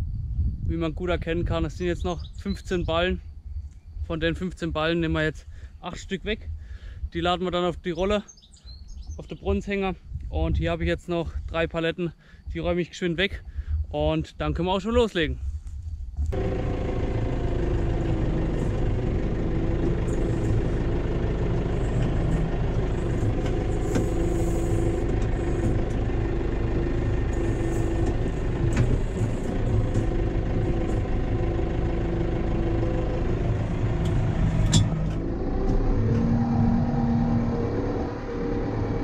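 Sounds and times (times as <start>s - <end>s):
steady whine: 16.2s - 39.0s
tractor diesel engine running: 16.2s - 39.0s.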